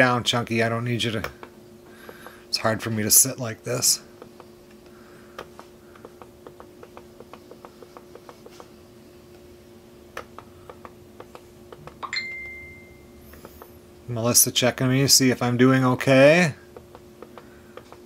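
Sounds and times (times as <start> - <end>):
steady low hum: 0.0 - 18.0
notification chime: 12.0 - 13.1.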